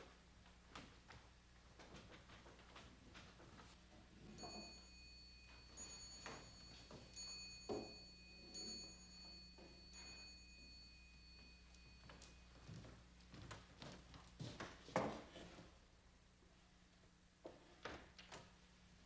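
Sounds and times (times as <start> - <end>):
soft knocks and shuffles: 0.1 - 15.8
small high-pitched bell strikes: 4.2 - 13.0.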